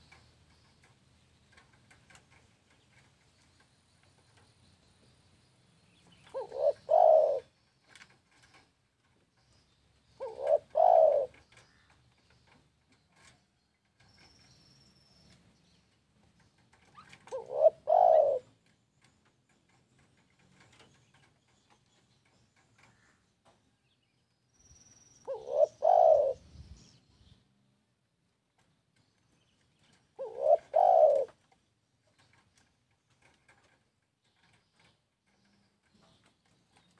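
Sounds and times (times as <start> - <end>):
dove cooing: 6.2 - 8.6, 10.2 - 11.9, 16.8 - 18.7, 25.3 - 26.6, 30.2 - 31.5.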